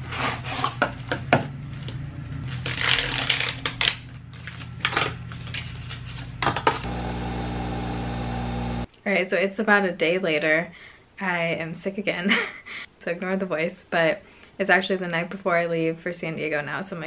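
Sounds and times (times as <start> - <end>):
coffee machine motor hum: 6.0 - 8.9.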